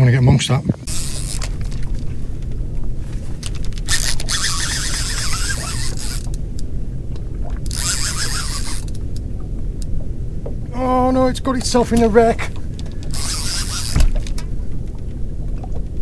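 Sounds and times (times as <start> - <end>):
fishing reel gears grinding: 0.9 - 2.1, 3.3 - 6.4, 7.6 - 9.1, 12.8 - 14.4.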